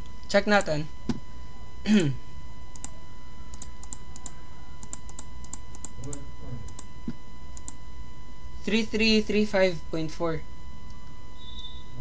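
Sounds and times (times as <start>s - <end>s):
keyboard keys clicking: 3.5s - 6.9s.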